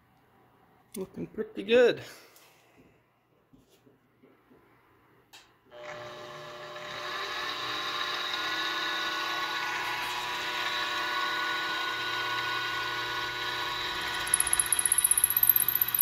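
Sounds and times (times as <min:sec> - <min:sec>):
mill spindle motor whining hum: 0:05.7 - 0:16.0.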